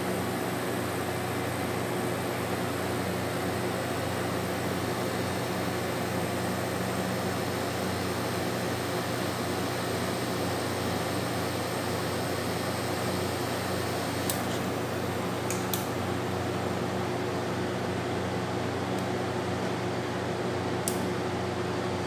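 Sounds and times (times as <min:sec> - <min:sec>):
air conditioner compressor hum: 0:00.0 - 0:22.0
switch clicks: 0:15.5 - 0:15.9, 0:20.8 - 0:21.0.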